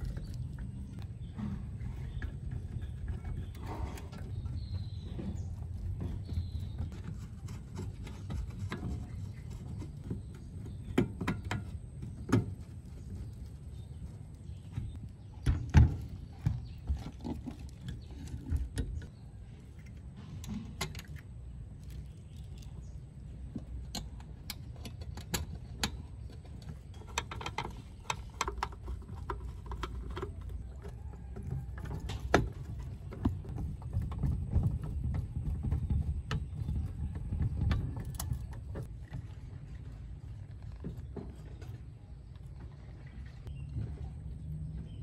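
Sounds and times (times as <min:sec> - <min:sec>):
metal clicks and knocks: 0:00.0 - 0:19.1, 0:23.4 - 0:38.9.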